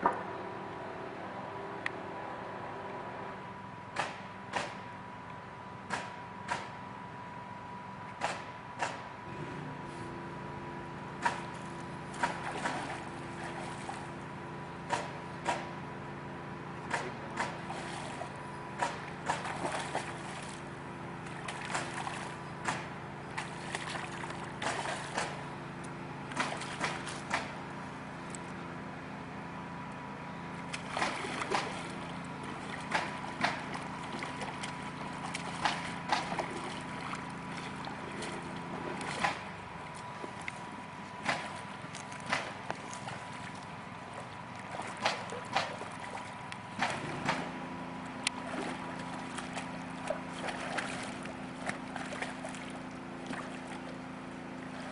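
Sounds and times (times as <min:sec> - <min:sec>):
steady low hum: 0:00.0 - 0:54.9
stream water trickling: 0:11.2 - 0:16.0, 0:16.8 - 0:28.7, 0:29.9 - 0:54.9.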